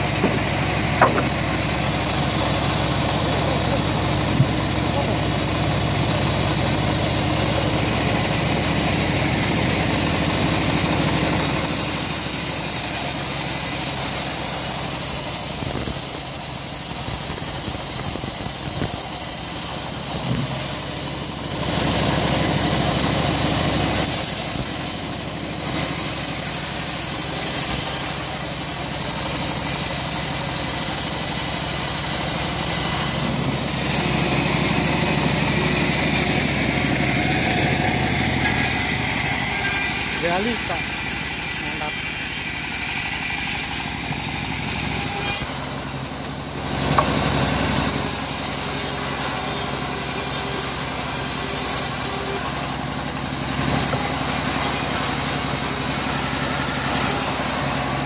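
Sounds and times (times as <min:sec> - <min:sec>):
band sawmill motor droning: 0:00.0 - 0:58.0
saw blade cutting hiss: 0:07.7 - 0:20.7, 0:23.8 - 0:24.7, 0:25.6 - 0:45.6, 0:47.8 - 0:58.0.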